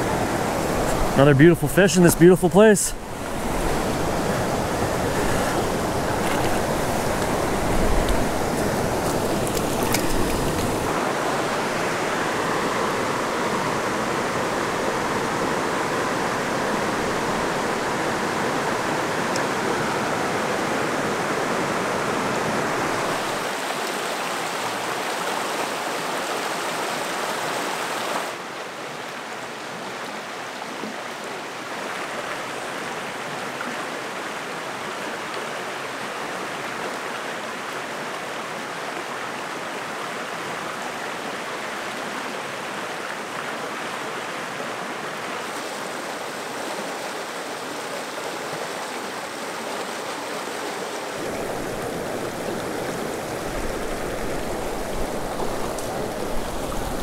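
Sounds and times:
stream water rushing: 0:00.0 - 0:57.0.

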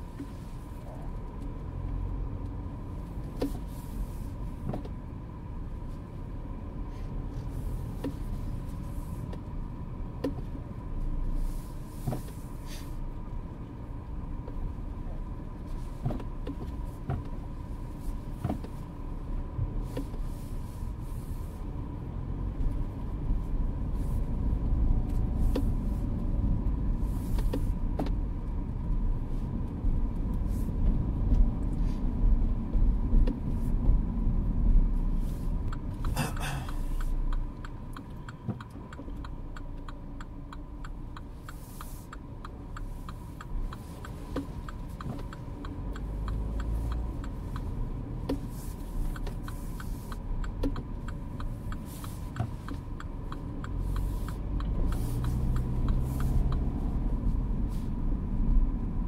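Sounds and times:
car engine and road rumble: 0:00.0 - 0:59.0
brief hissing scrape: 0:11.5 - 0:13.0
light even ticking: 0:35.6 - 0:57.4.

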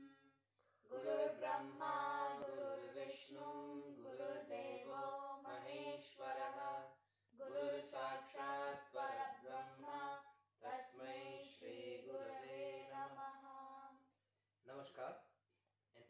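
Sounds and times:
girls and man chanting in unison: 0:00.9 - 0:13.9.

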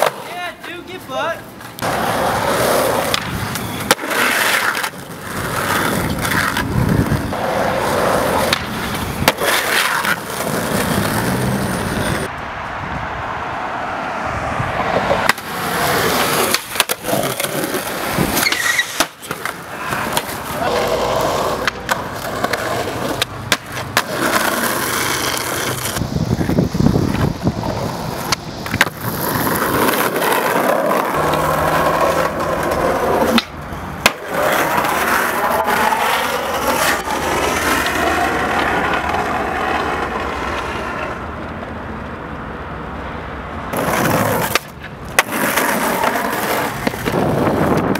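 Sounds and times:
skateboard pops and slaps: 0:00.0 - 0:00.2, 0:03.0 - 0:05.0, 0:08.3 - 0:11.2, 0:15.0 - 0:15.5, 0:16.4 - 0:20.4, 0:21.6 - 0:26.0, 0:28.2 - 0:31.4, 0:32.2 - 0:35.3, 0:43.7 - 0:47.9
skateboards rolling on concrete: 0:00.0 - 0:47.9.

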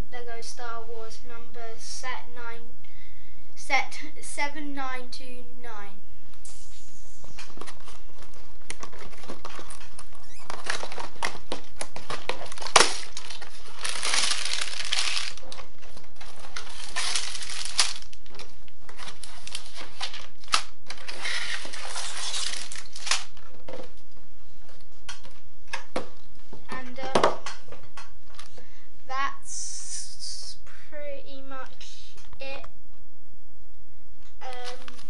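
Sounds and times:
plastic bags crinkling: 0:07.9 - 0:23.4.

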